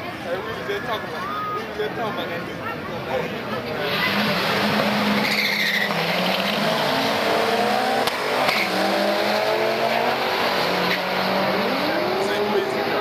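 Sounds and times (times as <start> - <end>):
cars accelerating hard: 3.8 - 13.0.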